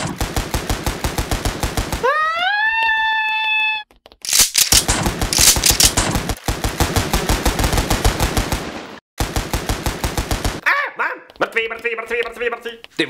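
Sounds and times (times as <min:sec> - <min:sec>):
automatic gunfire: 0:00.0 - 0:02.1, 0:04.3 - 0:10.6.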